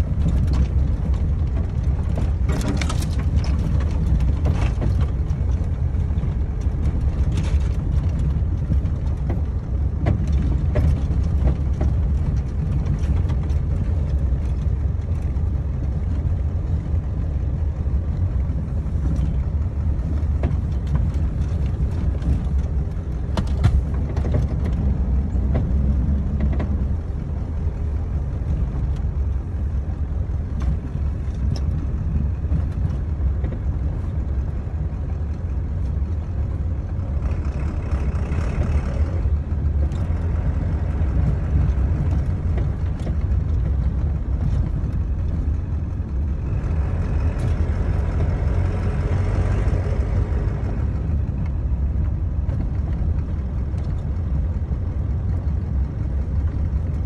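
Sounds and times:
sharp knocks and rattles: 0:00.0 - 0:16.7, 0:18.2 - 0:29.8
diesel truck engine rumble: 0:00.0 - 0:57.0.

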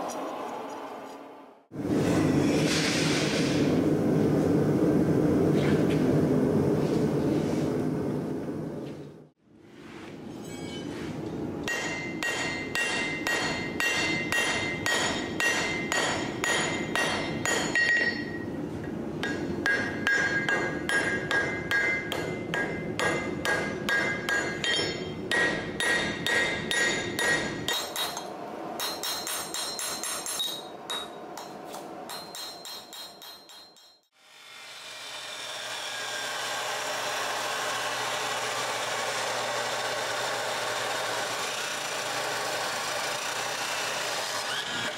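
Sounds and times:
hammer blows on anvil: 0:11.6 - 0:18.5, 0:19.2 - 0:34.1
metallic anvil ring: 0:11.7 - 0:18.6, 0:19.2 - 0:34.1.

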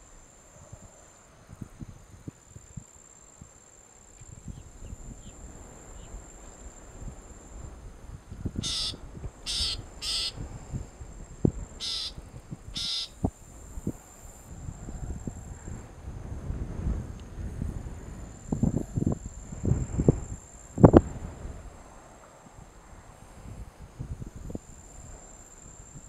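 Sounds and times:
bird harsh raspy calls: 0:08.6 - 0:10.4, 0:11.8 - 0:12.2, 0:12.8 - 0:13.2.

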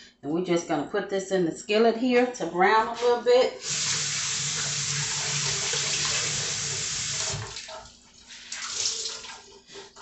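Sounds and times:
faucet running into sink: 0:03.6 - 0:07.9, 0:08.5 - 0:09.5.

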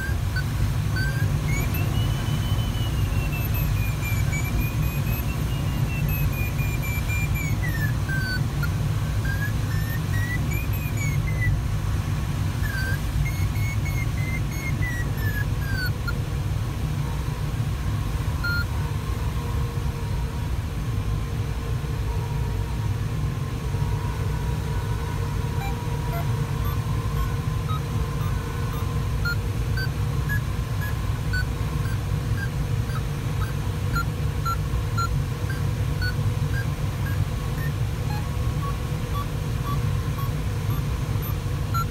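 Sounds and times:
short regular beeps: 0:00.0 - 0:11.6, 0:12.6 - 0:16.2, 0:18.4 - 0:18.7, 0:25.5 - 0:41.9
wavering sliding tone: 0:00.0 - 0:11.6, 0:12.6 - 0:16.1.

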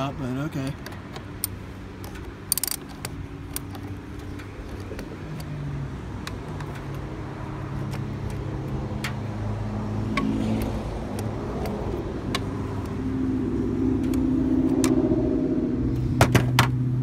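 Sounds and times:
engine hum: 0:00.0 - 0:17.0
wrench clicking on metal: 0:00.8 - 0:05.5.

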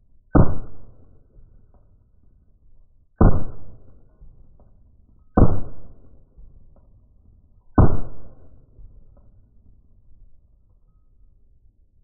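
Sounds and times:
slowed-down gunshot booms: 0:00.3 - 0:01.8, 0:03.2 - 0:06.7, 0:07.8 - 0:09.2.

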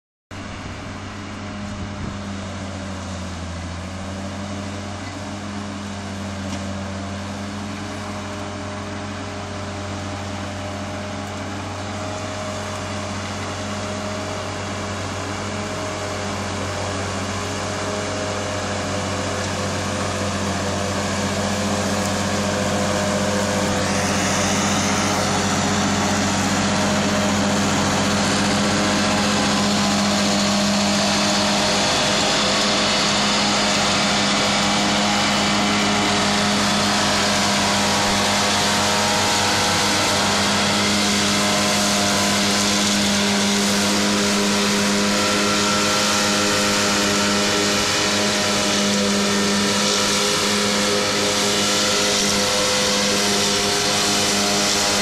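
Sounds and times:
tractor diesel engine running: 0:00.3 - 0:55.0.

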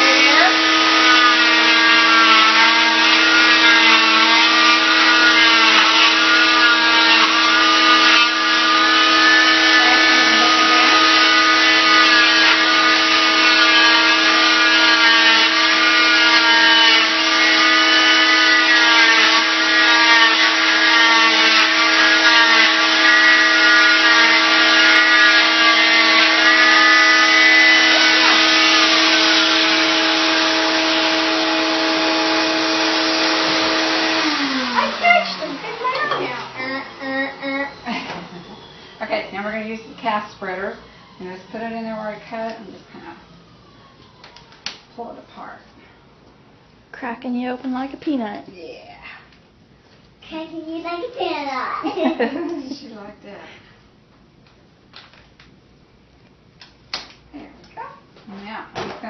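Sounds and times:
cast saw whining: 0:00.0 - 0:44.6
vacuum motor hum: 0:00.0 - 0:44.7.

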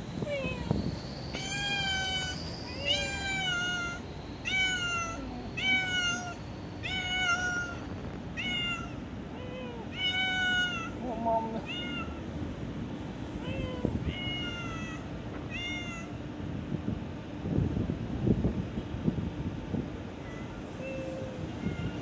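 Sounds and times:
cat meowing: 0:01.4 - 0:12.2, 0:13.4 - 0:16.2, 0:20.2 - 0:22.0.

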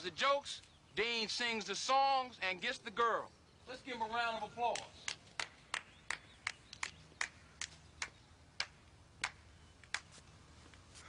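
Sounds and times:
person clapping slowly: 0:04.7 - 0:10.2.

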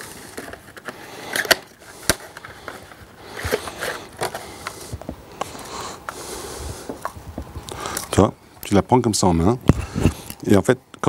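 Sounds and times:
packaging rustling: 0:00.0 - 0:08.2.

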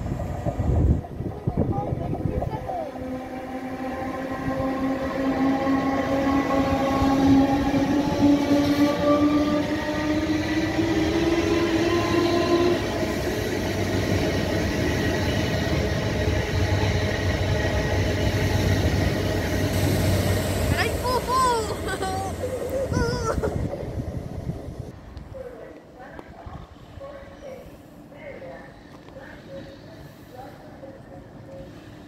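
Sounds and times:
wheels rumbling on rail: 0:00.0 - 0:25.3.

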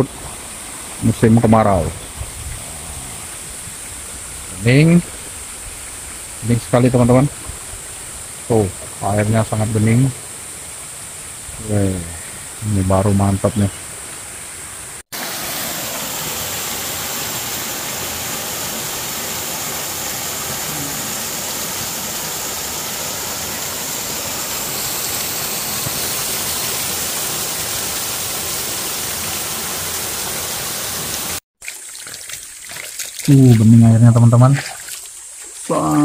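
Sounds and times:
small waterfall splashing onto rocks: 0:15.1 - 0:33.8, 0:34.6 - 0:36.0.

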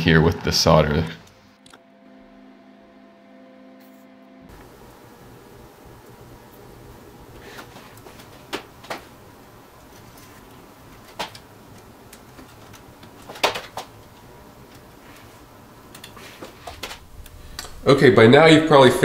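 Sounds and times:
low steady hum: 0:00.0 - 0:19.0
clicks and knocks of handling: 0:09.9 - 0:17.0.

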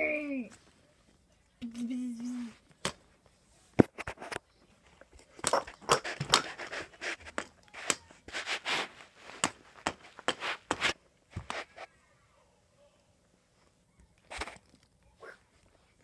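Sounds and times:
plastic dolls scuffing on carpet: 0:06.1 - 0:11.9.

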